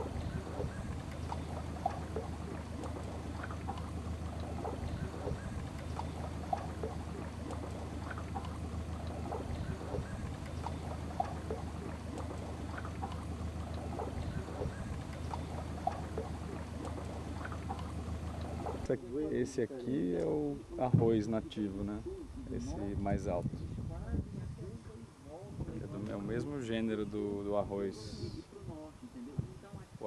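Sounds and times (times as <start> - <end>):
water lapping against hull: 0.0 - 19.5
boat motor humming: 0.0 - 30.0.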